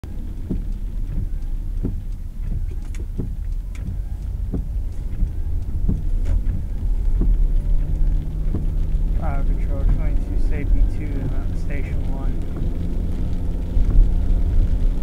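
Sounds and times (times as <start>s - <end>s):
car road and engine rumble: 0.0s - 15.0s
sharp taps: 0.4s - 8.8s.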